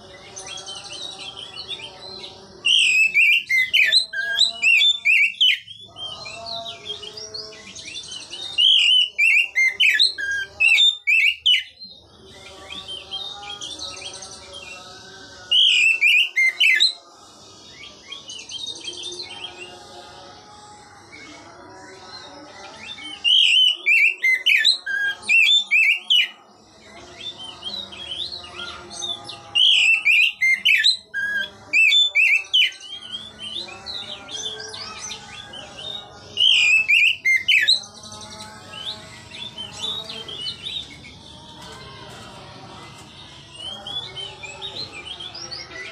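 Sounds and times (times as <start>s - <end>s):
bird singing whistled phrases: 2.6s - 6.2s, 15.5s - 17.0s, 23.1s - 26.4s.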